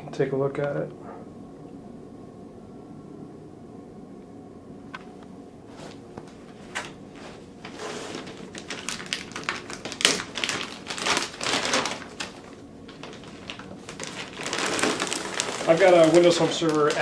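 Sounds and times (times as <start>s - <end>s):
plastic bag crinkling: 7.6s - 17.0s.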